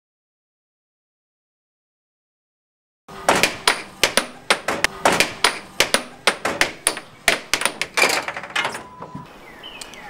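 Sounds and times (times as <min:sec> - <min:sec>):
air hockey puck clacking: 0:03.3 - 0:08.8.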